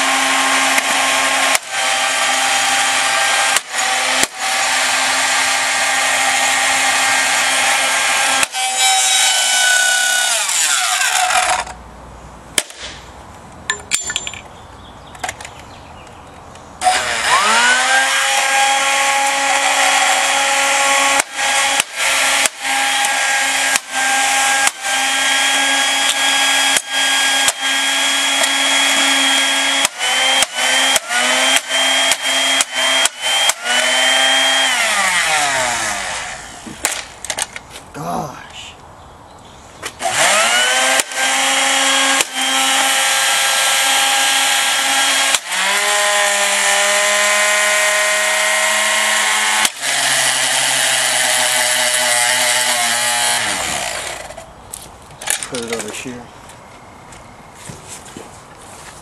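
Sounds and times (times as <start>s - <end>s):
vacuum motor whining: 16.8s - 21.5s.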